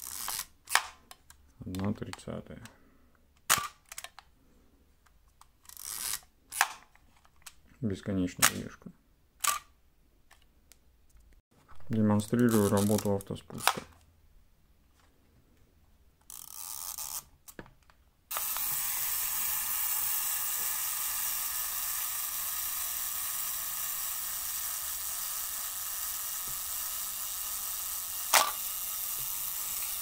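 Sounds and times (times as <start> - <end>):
camera shutter click: 18.3 - 19.1, 28.2 - 28.8
self-timer mechanical rasp: 18.3 - 30.0.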